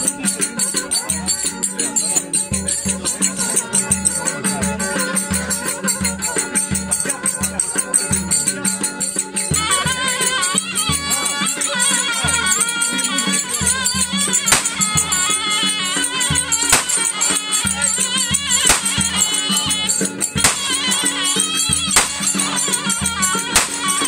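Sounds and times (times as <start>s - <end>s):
zurna reedy melody: 0.0s - 24.0s.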